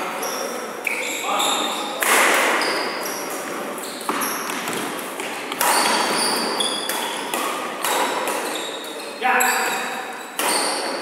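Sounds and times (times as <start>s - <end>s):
shoes squeaking on wooden court: 0.0s - 11.0s
racket hitting shuttlecock: 2.0s - 2.6s, 3.5s - 8.6s, 10.4s - 11.0s.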